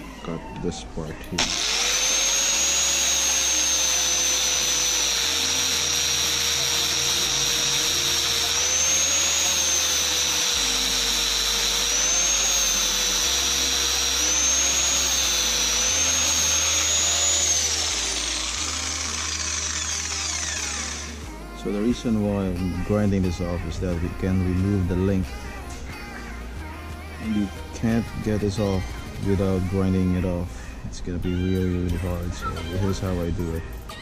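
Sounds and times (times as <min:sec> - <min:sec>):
angle grinder cutting steel: 0:01.3 - 0:26.3.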